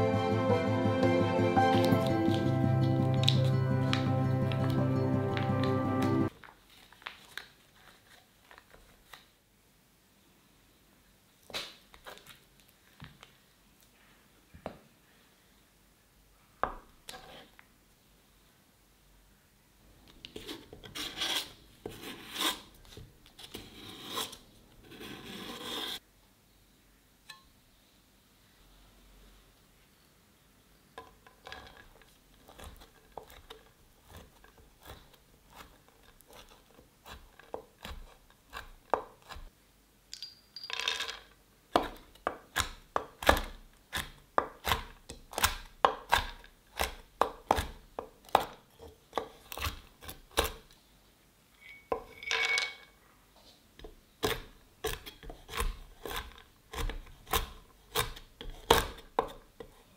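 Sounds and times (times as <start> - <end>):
knife chopping on wooden board: 36.3 - 39.5, 41.8 - 50.6, 54.2 - 59.7.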